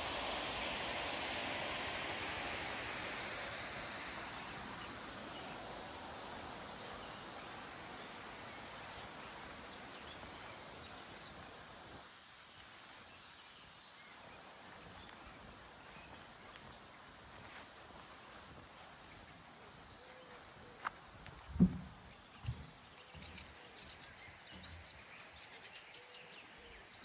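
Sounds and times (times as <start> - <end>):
water rushing: 0.0 - 13.1.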